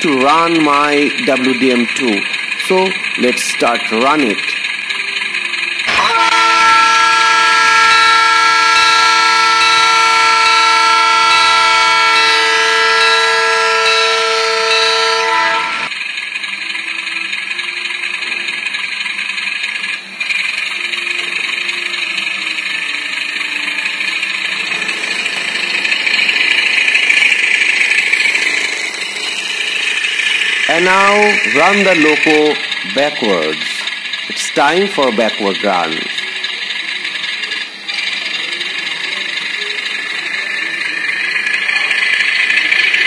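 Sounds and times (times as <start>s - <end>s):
diesel engine sound: 0.0s - 43.0s
model train horn: 4.9s - 15.9s, 20.7s - 24.9s, 30.3s - 33.8s, 34.4s - 43.0s.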